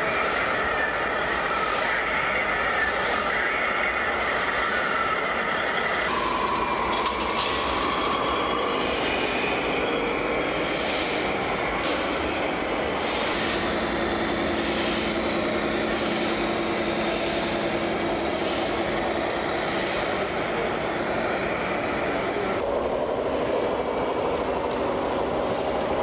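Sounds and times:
machine running steadily: 10.6s - 26.0s.

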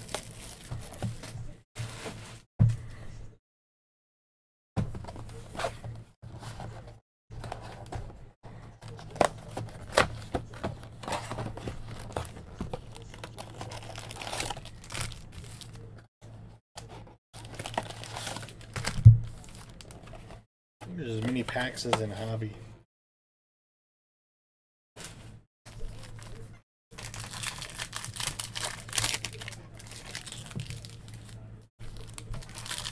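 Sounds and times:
foil packs crinkling: 8.9s - 15.9s, 17.4s - 20.2s, 27.0s - 32.9s.

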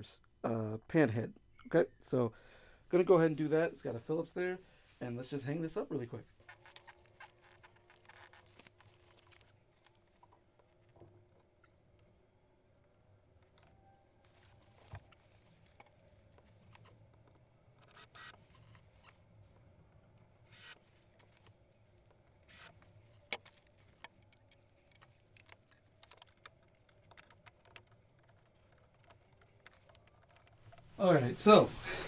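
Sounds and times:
rubbing and clicks: 6.4s - 11.5s, 13.5s - 19.8s, 20.4s - 31.0s
screwdriver driving screw: 17.8s - 18.4s, 20.5s - 20.8s, 22.5s - 22.7s.

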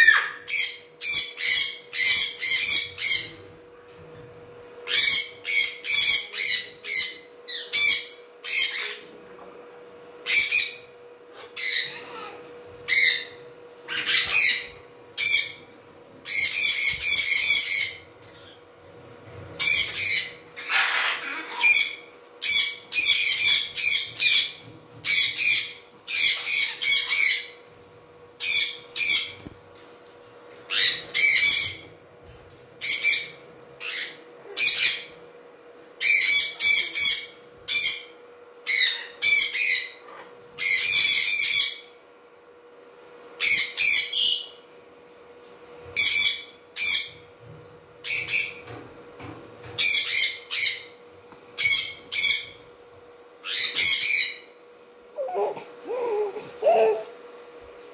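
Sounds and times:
cockatoo screeching: 0.0s - 0.7s, 19.6s - 23.7s
faint steady hum: 0.0s - 57.9s.

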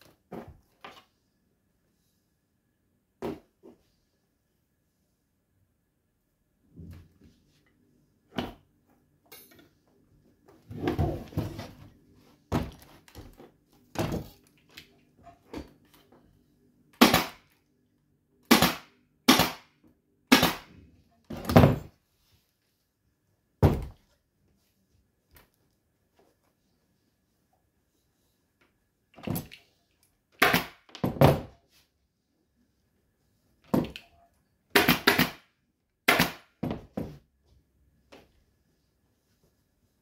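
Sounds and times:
pneumatic staple gun shots: 18.5s - 19.6s.

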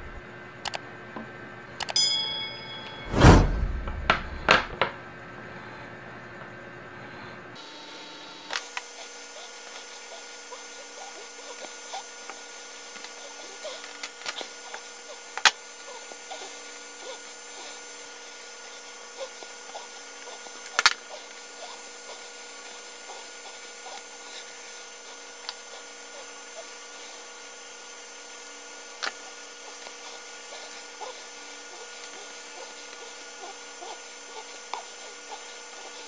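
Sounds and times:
steady hum: 0.0s - 0.3s, 2.0s - 4.9s.

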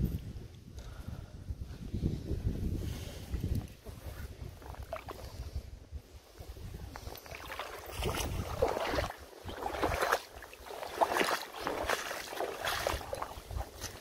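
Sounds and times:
water splashing and sloshing: 3.4s - 14.0s.

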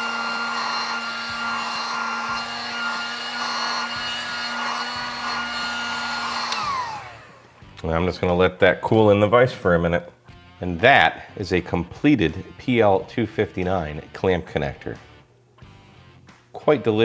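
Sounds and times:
heat gun blowing with motor whine: 0.0s - 7.8s.

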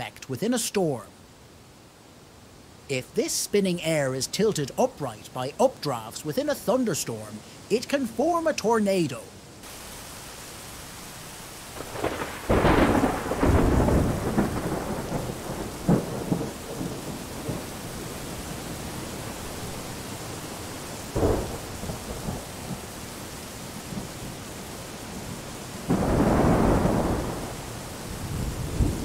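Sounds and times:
rain hissing: 0.0s - 29.0s
thunder rumbling: 11.8s - 19.8s, 21.1s - 23.0s, 25.1s - 29.0s.

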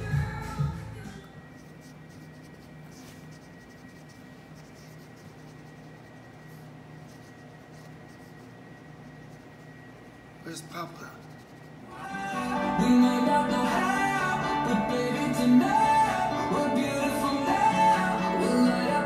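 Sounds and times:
low room hum: 0.0s - 19.0s
marker scratching on fabric: 1.5s - 10.2s, 11.0s - 11.9s.

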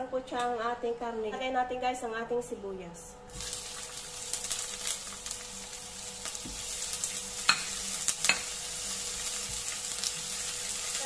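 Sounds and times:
onion sizzling in hot oil: 3.3s - 11.0s.

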